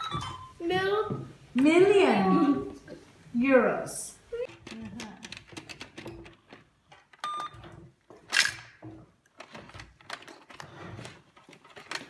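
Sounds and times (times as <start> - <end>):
toy cash register beep: 0.0 - 0.6, 7.2 - 7.6.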